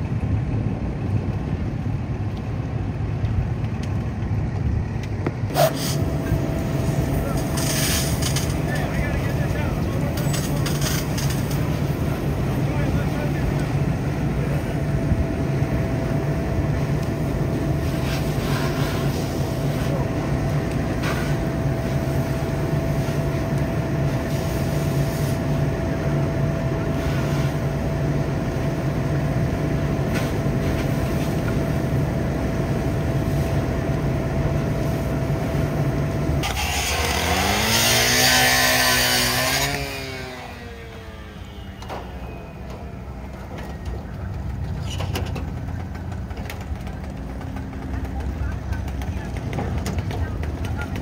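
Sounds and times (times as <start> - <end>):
diesel engine idling: 0.0 - 38.3, 39.4 - 51.0
hose water and steam hissing: 5.5 - 8.6, 17.8 - 20.0, 21.0 - 25.6, 26.9 - 27.8.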